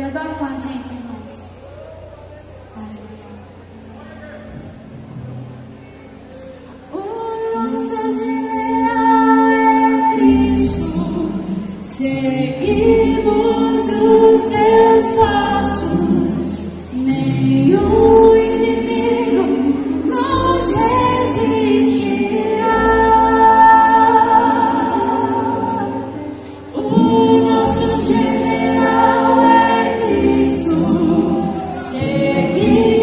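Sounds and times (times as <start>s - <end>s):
gospel voices singing: 7.0s - 33.0s
bass line: 9.7s - 33.0s.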